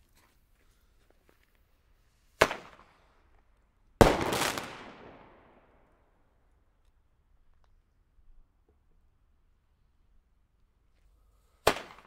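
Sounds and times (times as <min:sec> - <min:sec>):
fireworks bangs: 0:02.4 - 0:03.0, 0:04.0 - 0:05.8.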